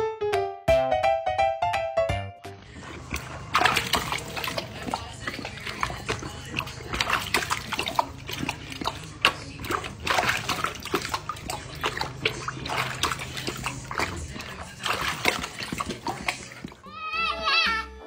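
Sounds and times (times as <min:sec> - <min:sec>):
water splashing in metal bowl: 0:02.7 - 0:16.9.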